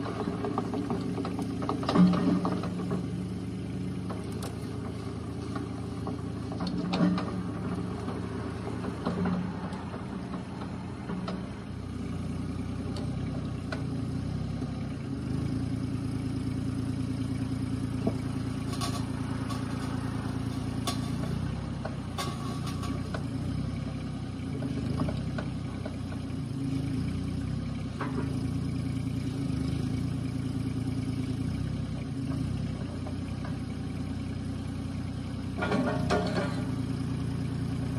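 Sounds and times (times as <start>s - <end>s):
excavator diesel engine running: 0.0s - 37.9s
light metal clanks: 17.9s - 23.8s, 35.4s - 37.9s.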